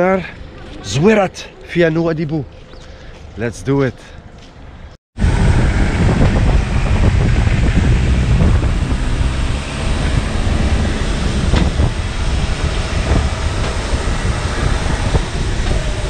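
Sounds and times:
airliner engines running: 5.2 - 16.0
wind buffeting microphone: 5.2 - 16.0.

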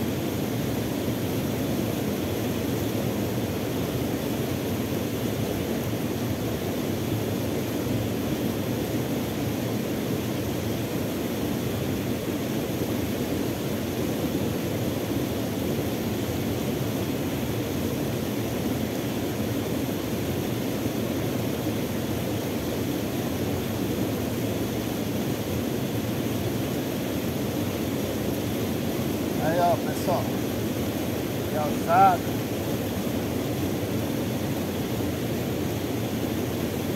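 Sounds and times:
water cascade rushing: 0.1 - 36.9
falling rain: 12.0 - 36.9.

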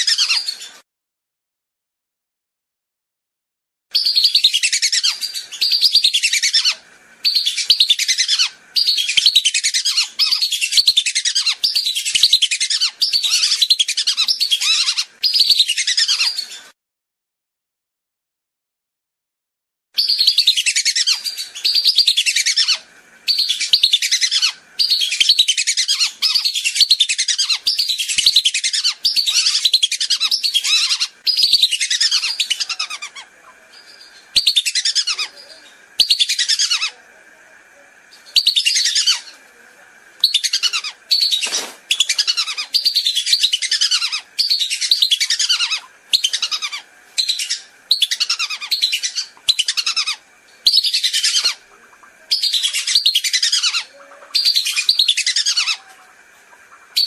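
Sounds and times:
whistling duck calls: 40.2 - 55.9.

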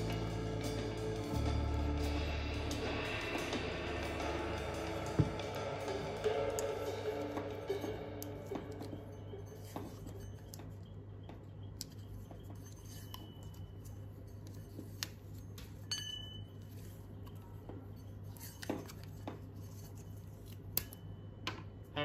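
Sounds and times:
steady low hum: 0.0 - 18.4
metallic pings: 4.1 - 13.8, 15.8 - 16.6.

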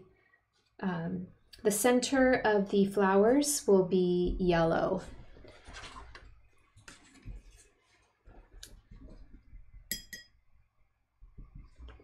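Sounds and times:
paintbrush clinking on glass jar: 9.9 - 10.4.

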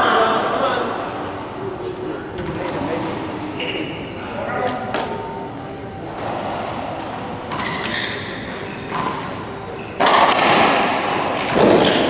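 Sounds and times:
racquetball hitting court walls: 6.1 - 12.0.

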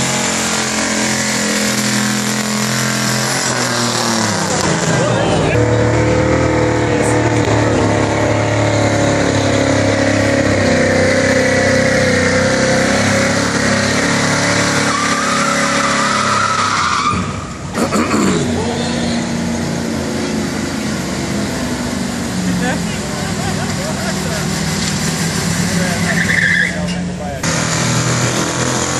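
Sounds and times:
tire squeal on wet pavement: 0.0 - 5.0, 8.8 - 17.6, 23.8 - 28.9
truck engine at full throttle: 0.0 - 28.9.

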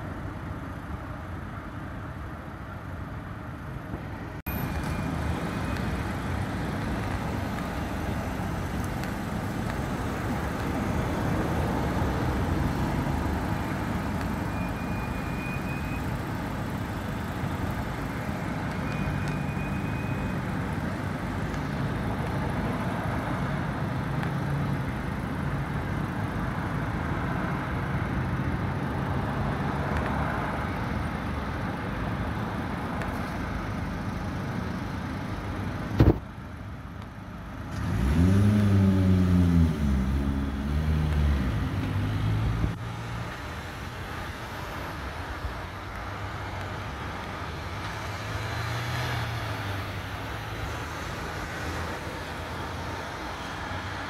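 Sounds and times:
street traffic: 0.0 - 54.0
vehicle engine revving close by: 37.7 - 42.8.

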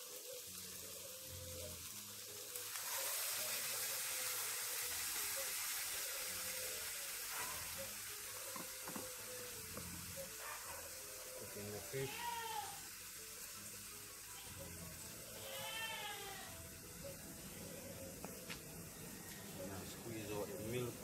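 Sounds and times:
fish sizzling in hot oil: 0.0 - 21.0.

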